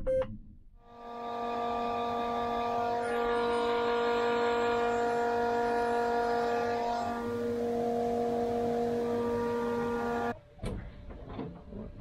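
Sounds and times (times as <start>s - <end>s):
high machine whine: 0.9s - 10.4s.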